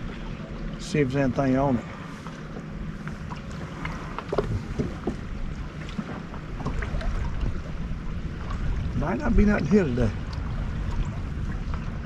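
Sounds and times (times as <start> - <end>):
low rumble of wind and water: 0.0 - 12.0
faint clicks and knocks: 2.2 - 6.9.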